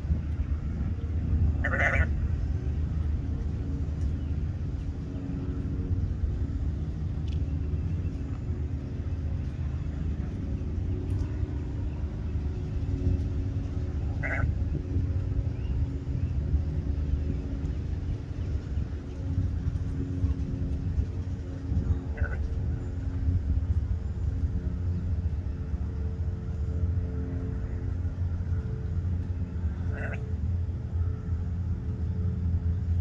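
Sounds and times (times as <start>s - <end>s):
low rumble: 0.0s - 33.0s
sheep bleating: 1.6s - 2.1s.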